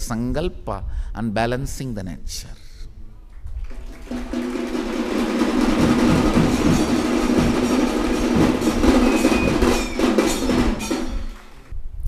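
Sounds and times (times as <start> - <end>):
large audience applauding: 3.3 - 10.6.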